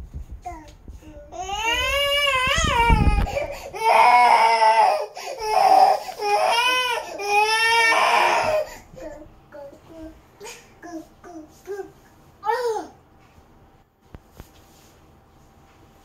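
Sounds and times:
toddler crying: 1.3 - 9.2.

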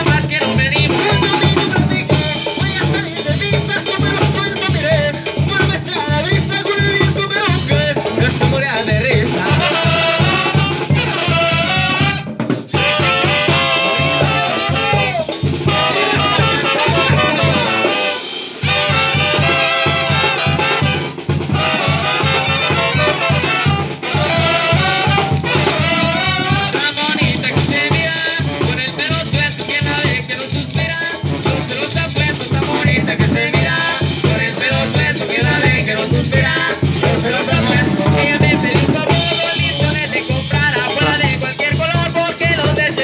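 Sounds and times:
drum kit beat: 0.0 - 43.0
trumpets and trombones: 7.4 - 41.7
sousaphone bass line: 13.6 - 17.9, 24.3 - 42.0.

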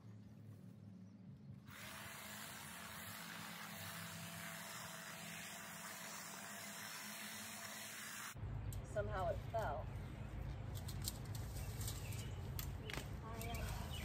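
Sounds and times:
electric hedge trimmer buzzing: 1.7 - 8.4.

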